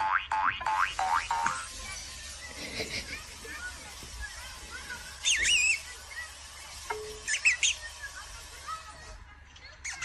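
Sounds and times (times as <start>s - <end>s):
high warbling bird chirps: 5.2s - 5.9s, 7.1s - 8.0s.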